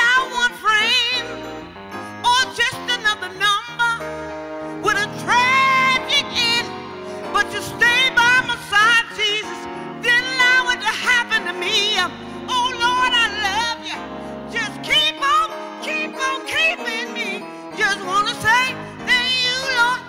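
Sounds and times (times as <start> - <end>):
woman singing with vibrato: 0.0 - 1.6, 2.2 - 20.0
sustained keyboard chords: 0.0 - 20.0.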